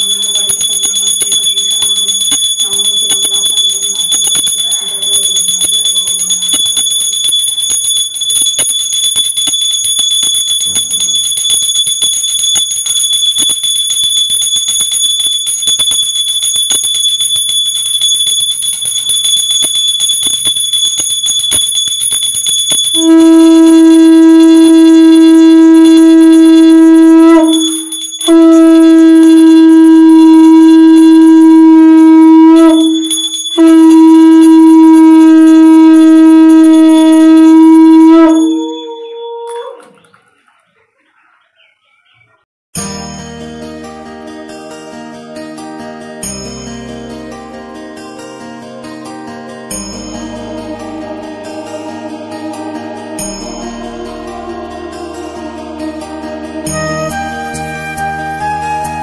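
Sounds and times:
small hand bell ringing rapidly: 0:00.0 - 0:31.4, 0:32.6 - 0:35.0, 0:49.7 - 0:55.8
conch shell blown: 0:23.0 - 0:39.8, 0:50.4 - 0:59.0.

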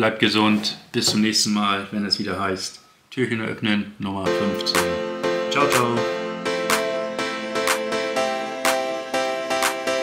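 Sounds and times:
instrumental background music: 0:04.2 - 0:10.0.

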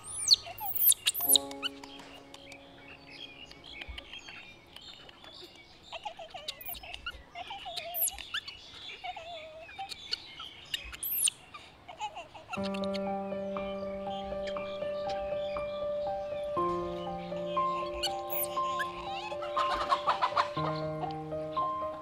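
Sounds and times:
baby monkey crying: 0:00.0 - 0:01.8, 0:03.6 - 0:15.5, 0:17.4 - 0:21.2.

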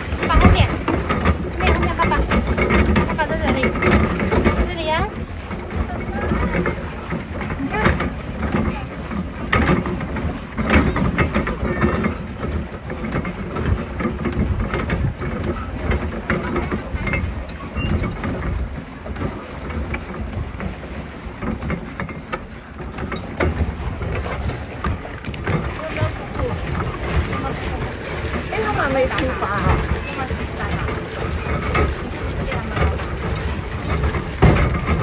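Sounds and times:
pedal boat low rumble: 0:00.0 - 0:35.0
pedal drive clicks and knocks: 0:00.0 - 0:35.0.

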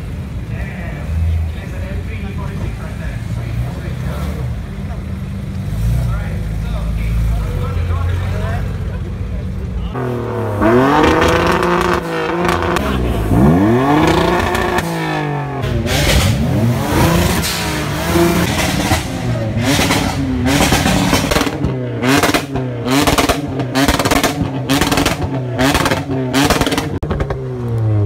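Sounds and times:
car engines revving: 0:00.0 - 0:28.0.

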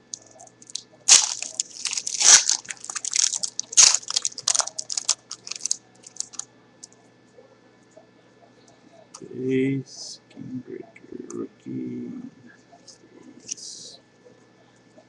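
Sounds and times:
foil wrapper crinkling: 0:00.0 - 0:06.4.

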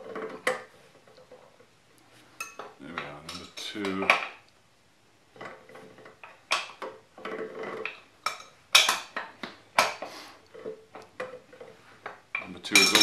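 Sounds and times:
metal clinking and rattling: 0:05.4 - 0:13.0.

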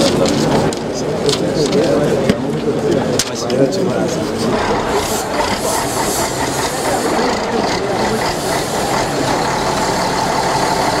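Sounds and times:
truck engine running: 0:04.0 - 0:11.0.

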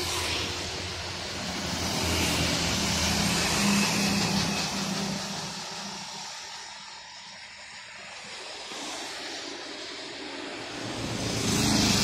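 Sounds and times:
small truck passing: 0:00.0 - 0:06.4, 0:10.2 - 0:12.0
highway traffic: 0:00.0 - 0:12.0.

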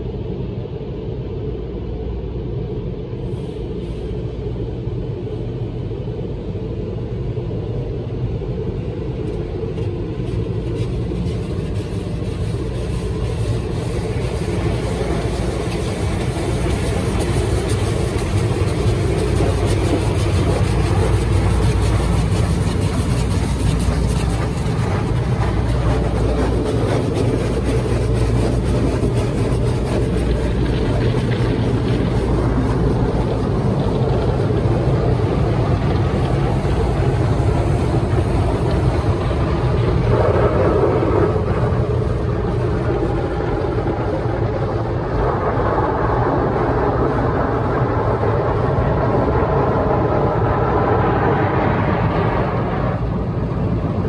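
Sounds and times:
car wash machinery rumble: 0:00.0 - 0:54.0
water spray hissing on car: 0:10.1 - 0:45.4.

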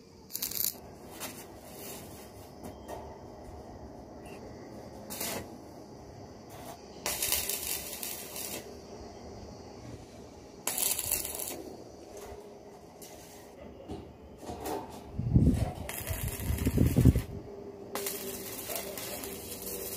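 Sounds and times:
welding arc crackling and hissing: 0:00.0 - 0:02.3, 0:04.9 - 0:05.6, 0:06.6 - 0:08.9, 0:10.6 - 0:13.6, 0:15.4 - 0:19.9.

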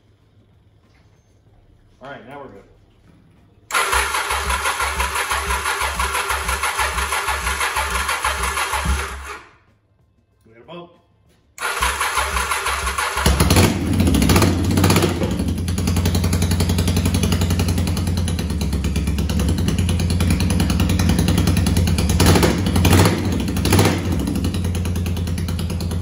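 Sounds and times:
motorcycle engine starting: 0:03.7 - 0:09.6, 0:11.6 - 0:26.0.

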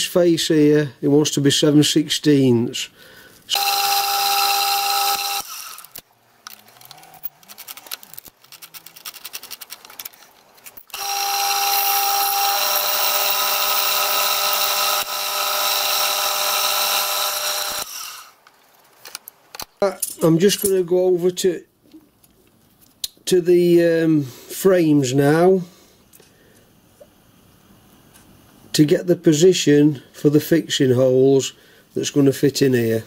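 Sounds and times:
pillar drill whining: 0:03.5 - 0:07.3, 0:10.8 - 0:18.4.

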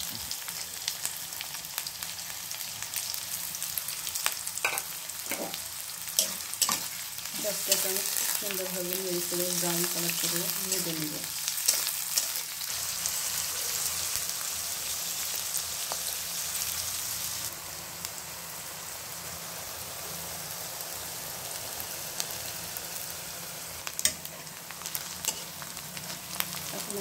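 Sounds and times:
onions sizzling in hot oil: 0:00.0 - 0:27.0.

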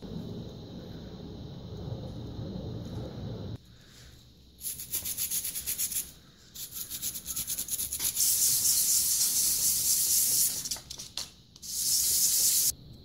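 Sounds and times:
metal part rubbed on emery paper: 0:04.6 - 0:10.8, 0:11.6 - 0:12.7.

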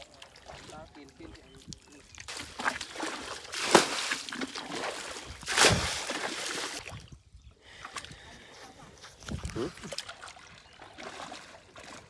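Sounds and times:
hands splashing in muddy water: 0:01.5 - 0:07.1, 0:09.0 - 0:12.0.

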